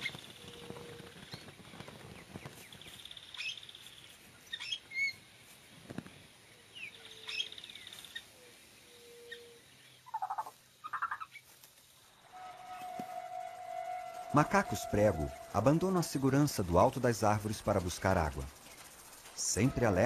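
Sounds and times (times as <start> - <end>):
birds calling with trills: 0.0 - 5.2, 6.1 - 11.5.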